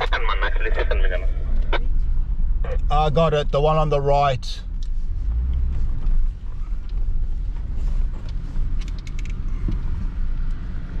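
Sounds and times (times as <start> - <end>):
vehicle engine and tyres rumbling: 0.0 - 11.0
light clicks and rattles: 8.0 - 10.6.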